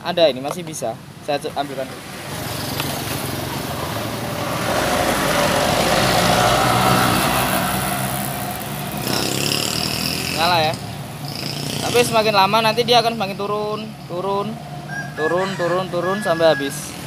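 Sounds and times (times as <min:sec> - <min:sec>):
vehicle engine passing by: 0:01.9 - 0:12.5.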